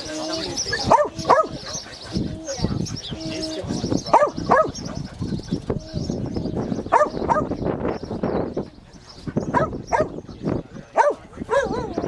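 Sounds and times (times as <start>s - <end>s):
dog barking: 0.8s - 1.8s, 4.1s - 4.8s, 6.9s - 7.6s, 9.5s - 10.2s, 10.9s - 12.0s.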